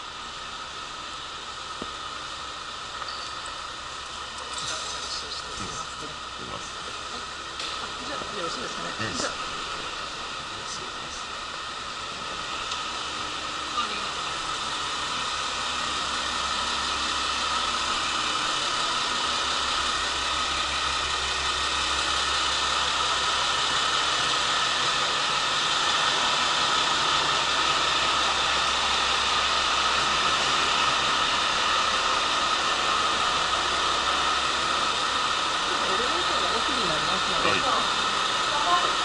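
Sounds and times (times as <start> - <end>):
diesel railcar engine idling: 0.0 - 39.0.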